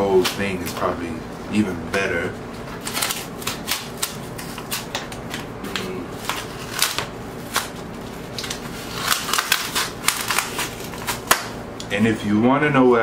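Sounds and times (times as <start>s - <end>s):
cardboard tearing: 2.7s - 11.5s.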